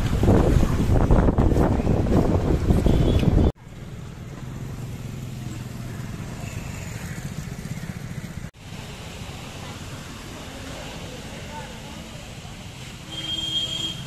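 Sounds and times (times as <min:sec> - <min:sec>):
wind buffeting microphone: 0:00.0 - 0:03.6
motorcycle riding: 0:00.0 - 0:09.8
faint traffic hum: 0:00.0 - 0:14.0.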